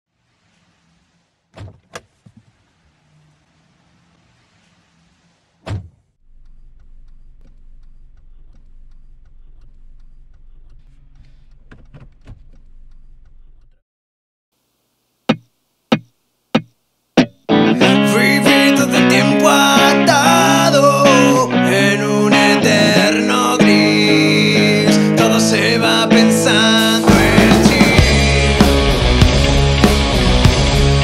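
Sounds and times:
car engine humming: 0.2s - 13.8s
car door shutting: 1.5s - 2.7s, 5.6s - 13.6s.

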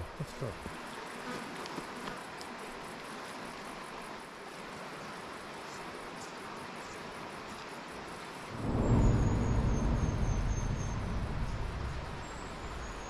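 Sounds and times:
loud low rumble: 8.6s - 13.0s.

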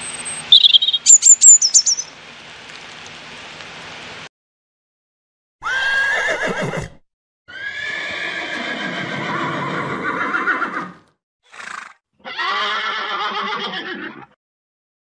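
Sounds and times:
horse whinnying: 5.6s - 14.4s.

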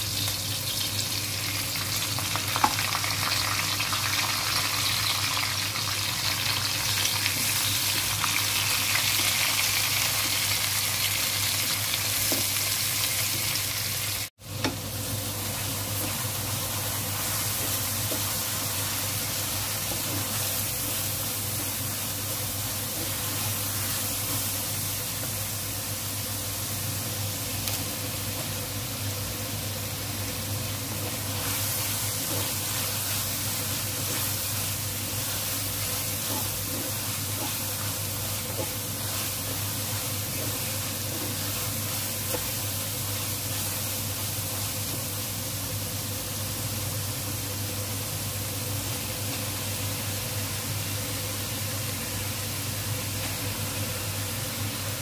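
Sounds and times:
food sizzling in a wok: 0.0s - 55.0s
wooden spatula scraping: 31.2s - 43.8s.

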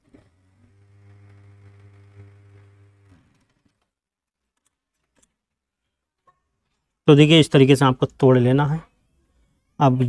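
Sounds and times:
sewing machine motor hum: 0.0s - 4.0s.

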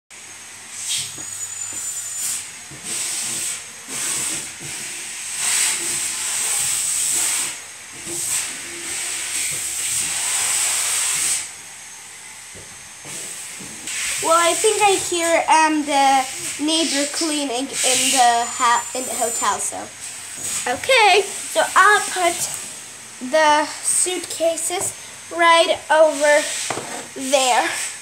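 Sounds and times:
hissing bursts: 0.7s - 28.0s
thin high whistle: 0.9s - 2.5s, 17.8s - 19.6s.

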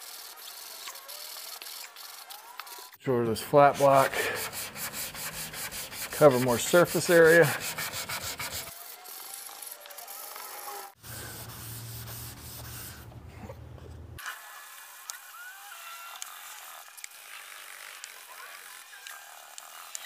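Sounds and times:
sandpaper scraping on filler: 0.0s - 3.0s, 3.6s - 13.1s.

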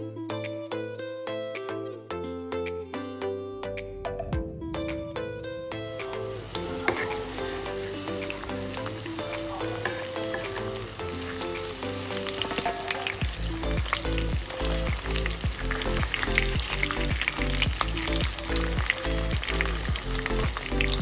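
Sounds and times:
background music: 0.0s - 21.0s
fritters sizzling in hot oil: 6.3s - 21.0s
spatula turning food: 6.5s - 20.4s.

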